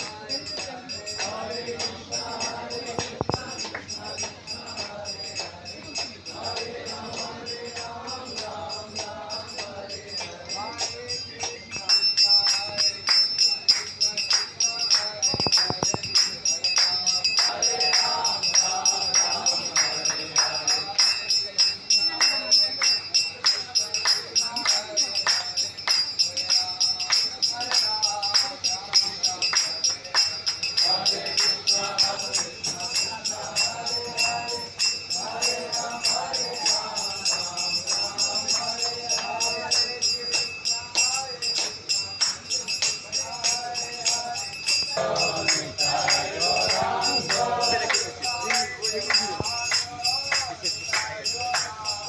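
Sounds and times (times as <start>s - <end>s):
group of voices chanting: 0.0s - 11.1s, 16.8s - 23.0s, 28.0s - 40.4s, 45.0s - 52.0s
high metallic ringing: 0.0s - 52.0s
jingling hand percussion: 0.0s - 52.0s.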